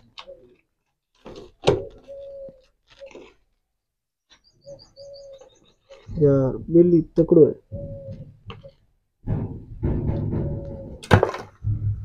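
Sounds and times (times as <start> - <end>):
dove cooing: 1.6 - 3.3, 4.6 - 6.2, 7.6 - 8.8, 10.1 - 11.0
high bird chirps: 4.2 - 6.3
loud thunk: 9.2 - 12.0.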